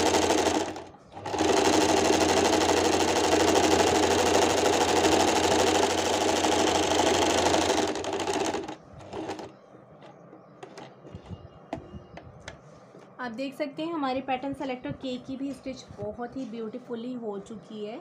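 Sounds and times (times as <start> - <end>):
electric sewing machine running: 0.0 - 9.5.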